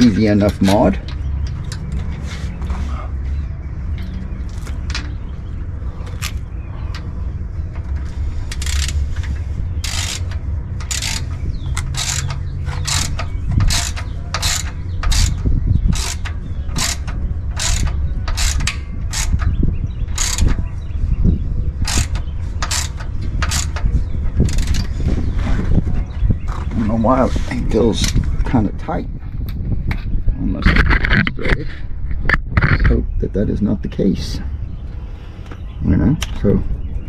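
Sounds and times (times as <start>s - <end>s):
low rumble: 0.0s - 33.6s
ratchet wrench clicking: 7.8s - 20.6s, 21.8s - 24.9s.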